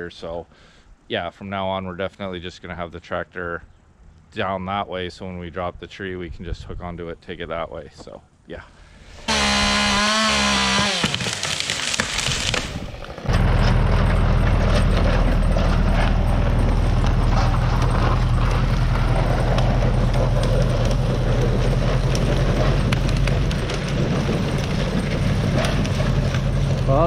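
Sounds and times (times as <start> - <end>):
tree dragged across snow: 9.0 - 27.0
tractor diesel engine running: 12.5 - 27.0.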